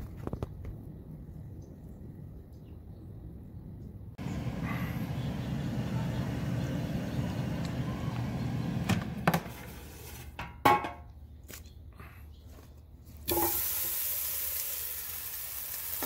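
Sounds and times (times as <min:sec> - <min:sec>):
air fryer fan humming: 0:04.2 - 0:09.6.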